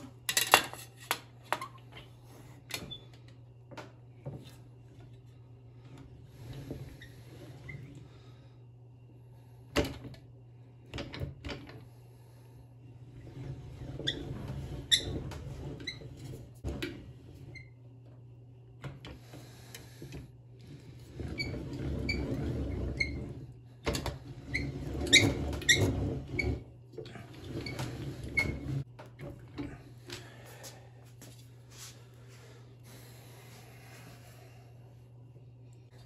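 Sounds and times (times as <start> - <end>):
slip roll rollers rumbling: 13.0 - 17.6, 19.2 - 29.9.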